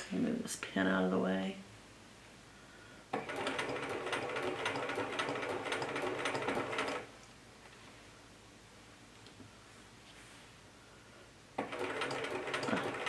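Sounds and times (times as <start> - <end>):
sewing machine stitching: 3.2 - 7.1, 11.6 - 13.0.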